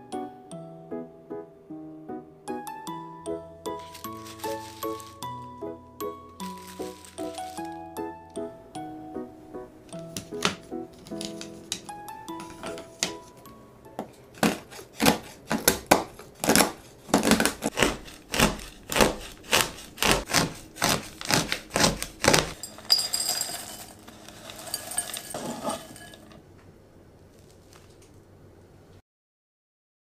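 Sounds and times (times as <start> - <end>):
chocolate pieces clattering into bowl: 3.8 - 5.3, 6.4 - 7.8, 22.4 - 26.4
knife chopping on wooden board: 10.1 - 11.8, 14.0 - 22.6.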